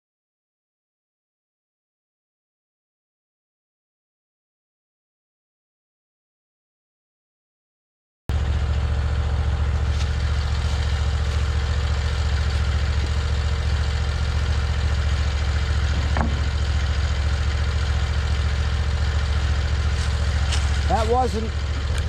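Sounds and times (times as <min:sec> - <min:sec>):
sawmill engine idling: 0:08.3 - 0:22.0.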